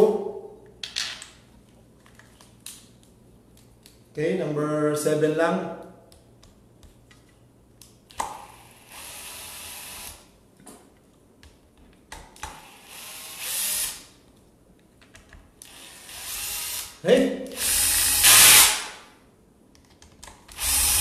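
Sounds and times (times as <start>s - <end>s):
cordless drill driving screws: 12.6s - 14.1s, 15.6s - 17.0s, 17.6s - 19.0s, 20.5s - 21.0s.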